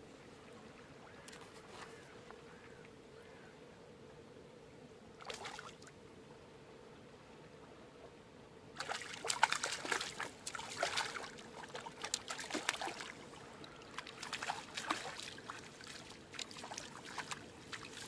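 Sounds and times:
fish splashing in water: 8.8 - 18.0.

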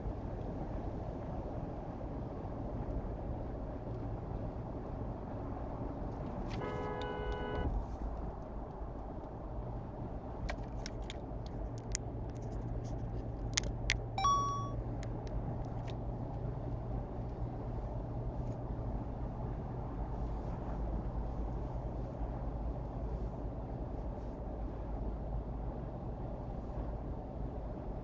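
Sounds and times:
road and tyre noise: 0.0 - 28.0
car horn: 6.5 - 7.7
short beep: 14.2 - 14.8.

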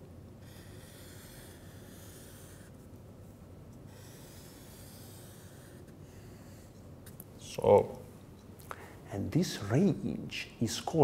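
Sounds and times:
marker scratching on paper: 0.4 - 2.9, 3.8 - 6.8.

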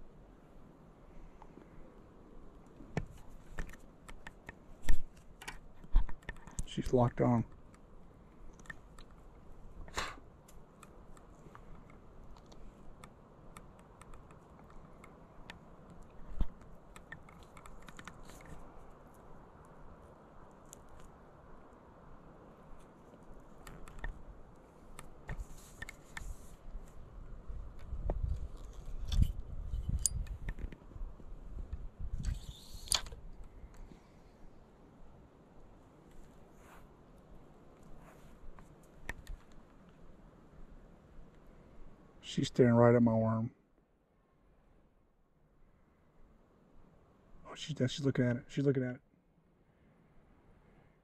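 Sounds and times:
faint clicks: 7.4 - 19.8, 22.8 - 27.0, 37.1 - 40.0
short hissing rustle: 9.8 - 10.3, 32.2 - 33.1, 36.2 - 37.0, 37.8 - 38.6.

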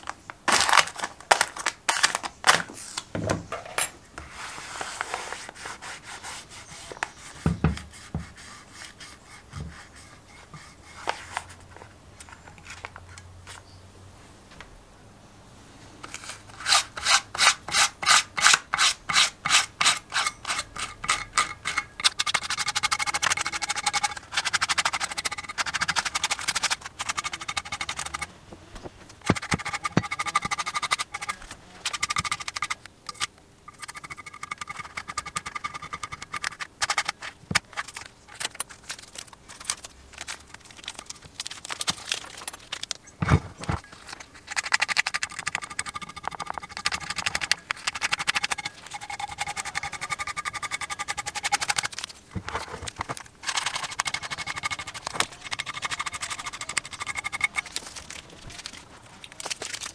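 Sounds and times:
knife blade scraping on metal: 16.5 - 28.3, 29.2 - 38.7, 43.9 - 52.0, 53.4 - 58.8.

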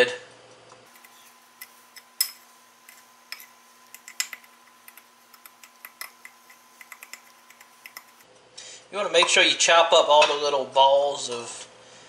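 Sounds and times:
metal spoon scraping ceramic bowl: 1.0 - 4.5.

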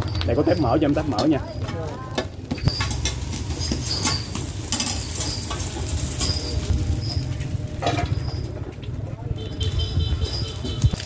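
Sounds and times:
light sizzle: 0.0 - 11.0
metal spatulas scraping iron pan: 2.5 - 8.5.

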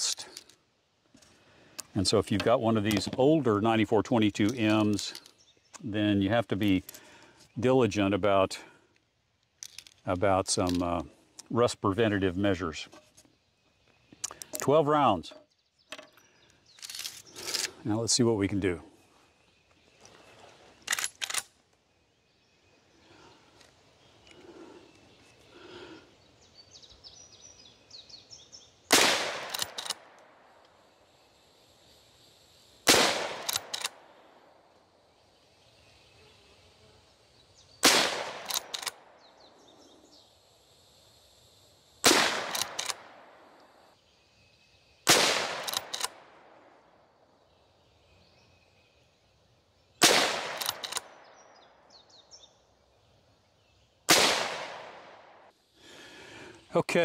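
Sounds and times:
rifle shots: 28.9 - 30.1, 32.8 - 34.0, 37.8 - 39.0, 42.0 - 43.4, 45.1 - 46.3, 50.0 - 51.2, 54.1 - 55.4.

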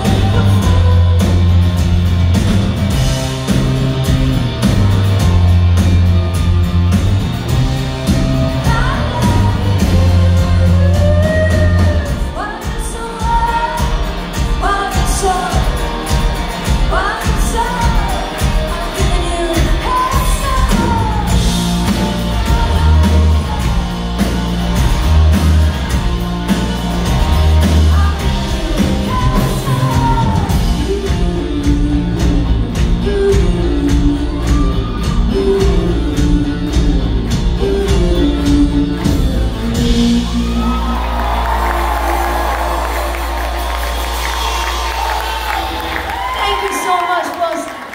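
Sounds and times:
woman singing: 0.0 - 1.9, 8.0 - 25.4, 27.1 - 41.9
live rock band playing: 0.0 - 47.9.

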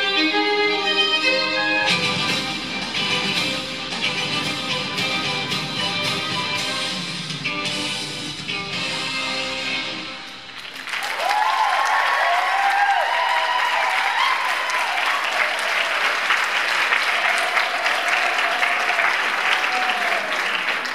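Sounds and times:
audience applauding: 10.5 - 20.9
crowd cheering and whooping: 10.7 - 20.9.

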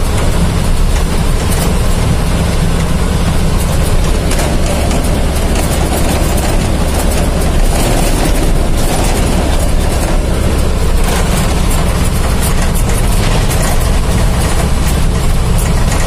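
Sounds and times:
heavy vehicle engine drone: 0.0 - 16.0
road noise: 0.0 - 16.0
wind noise: 0.0 - 16.0.

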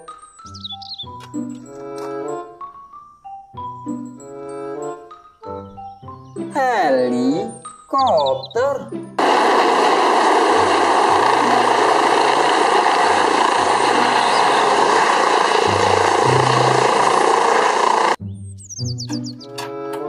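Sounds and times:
helicopter hovering: 7.1 - 18.2
high turbine whine: 9.2 - 18.2.

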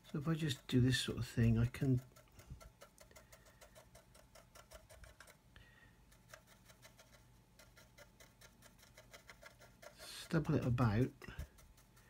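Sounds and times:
faint fast ticking: 0.0 - 5.4.

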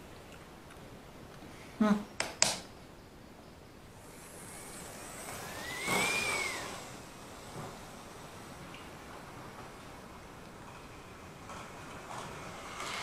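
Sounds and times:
sharp click: 2.2 - 2.7
model train motor whirring: 3.9 - 13.0.

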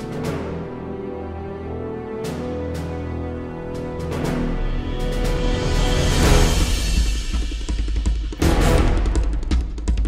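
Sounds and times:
soundtrack music with heavy drums: 0.0 - 10.0.

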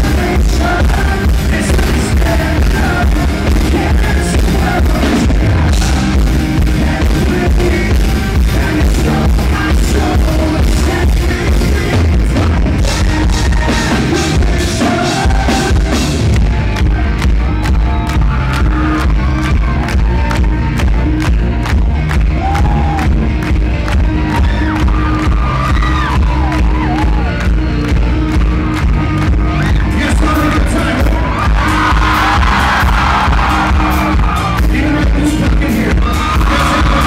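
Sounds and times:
man singing: 0.0 - 16.4, 29.7 - 37.0
live rock band: 0.0 - 37.0.

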